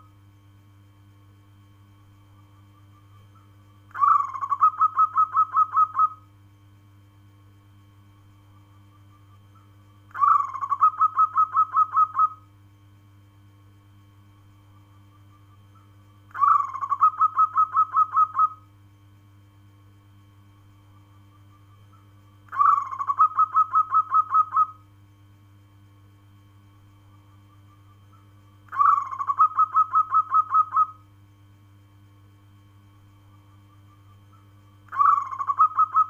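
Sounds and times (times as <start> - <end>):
dove cooing: 2.8 - 6.2, 9.1 - 12.5, 15.2 - 18.6, 21.3 - 24.8, 27.7 - 31.0, 33.8 - 36.0.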